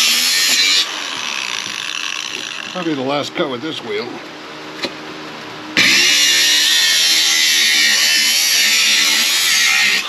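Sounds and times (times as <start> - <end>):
angle grinder cutting metal: 0.0 - 2.9, 5.8 - 10.0
grinder motor whine: 0.0 - 2.9, 5.8 - 10.0.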